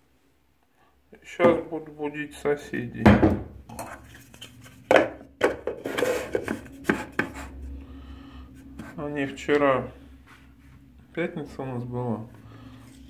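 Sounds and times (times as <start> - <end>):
plastic bowl and lid clattering: 4.9 - 7.4.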